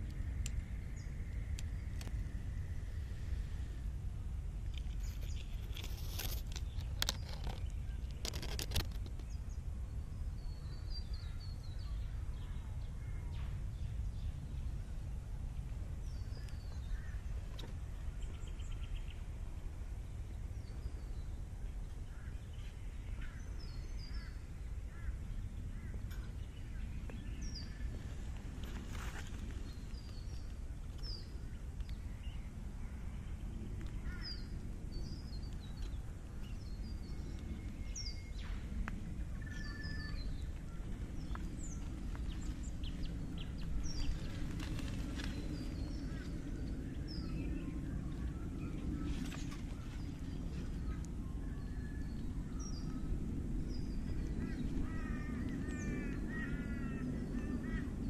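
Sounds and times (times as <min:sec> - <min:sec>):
low background rumble: 0:00.0 - 0:08.3, 0:08.9 - 0:58.0
birds chirping: 0:20.3 - 0:58.0.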